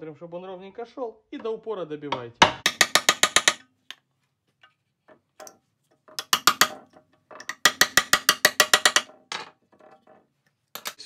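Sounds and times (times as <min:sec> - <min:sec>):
sharp metallic tapping: 0:02.2 - 0:04.0, 0:05.4 - 0:06.8, 0:07.4 - 0:09.2.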